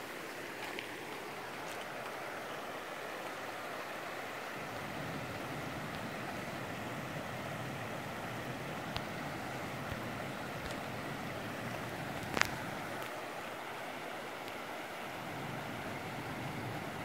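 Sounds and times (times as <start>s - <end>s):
stream rippling over rocks: 0.0s - 17.0s
faint clicks: 0.6s - 2.2s.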